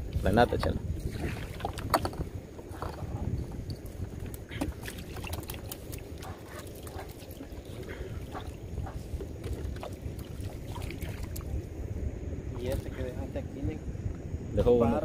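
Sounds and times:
steady low rumble: 0.0 - 15.0.

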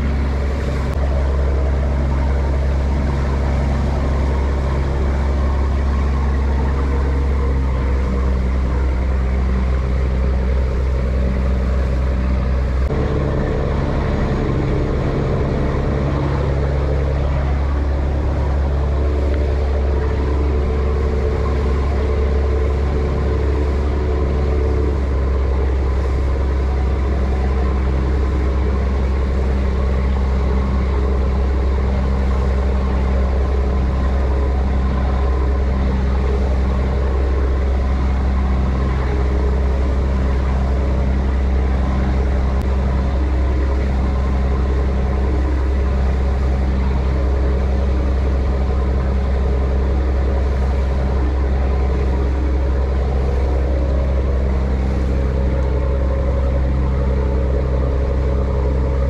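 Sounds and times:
boat engine droning: 0.0 - 59.0
water noise: 0.0 - 59.0
wind: 0.0 - 59.0.

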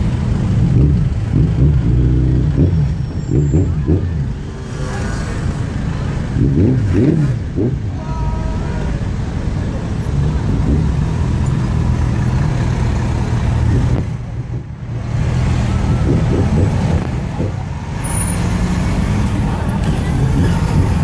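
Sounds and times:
car and lorry engines running: 0.0 - 21.0
crowd voices and shouts: 7.7 - 10.8, 15.6 - 21.0.

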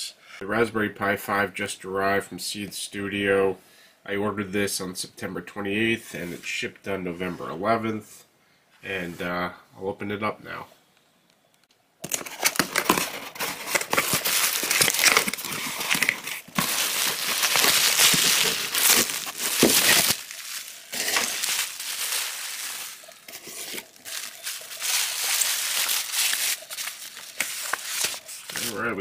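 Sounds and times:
bubble wrap crinkling: 12.0 - 29.0
cardboard flaps rubbing and scraping: 12.2 - 29.0.

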